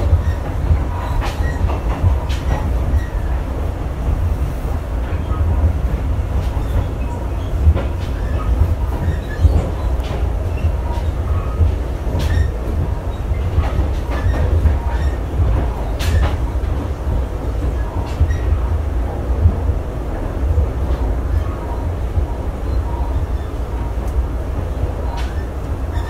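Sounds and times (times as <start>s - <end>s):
sharp clicks and knocks: 0.0s - 3.4s, 5.1s - 19.6s
train interior rumble: 0.0s - 26.0s.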